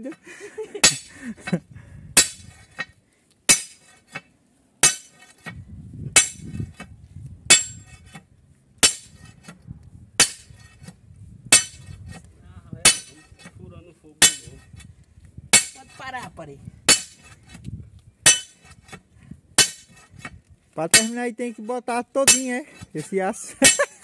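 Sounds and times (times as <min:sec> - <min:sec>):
sledgehammer striking a steel bar: 0:00.8 - 0:01.1, 0:02.2 - 0:02.9, 0:03.5 - 0:03.9, 0:04.8 - 0:05.6, 0:06.2 - 0:06.6, 0:07.5 - 0:08.2, 0:08.8 - 0:09.3, 0:10.2 - 0:10.7, 0:11.5 - 0:12.0, 0:12.8 - 0:13.5, 0:14.2 - 0:14.6, 0:15.5 - 0:15.9, 0:16.9 - 0:17.4, 0:18.2 - 0:19.0, 0:19.6 - 0:20.0, 0:20.9 - 0:21.2, 0:22.2 - 0:22.6, 0:23.6 - 0:23.9.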